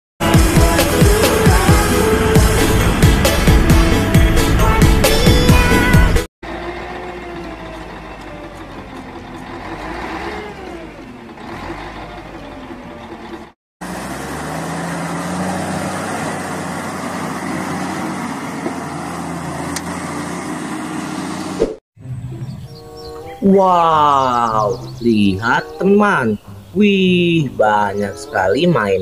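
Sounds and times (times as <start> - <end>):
diesel truck engine running: 0.2 - 29.0.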